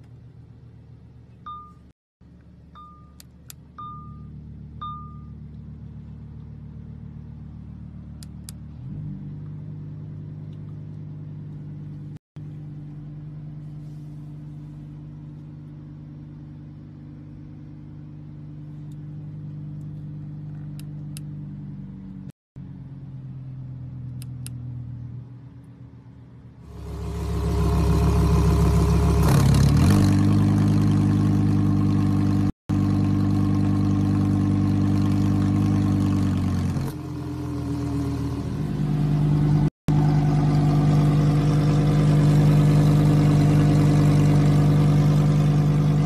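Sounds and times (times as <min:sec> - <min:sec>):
car engine idling: 0:26.3 - 0:46.0.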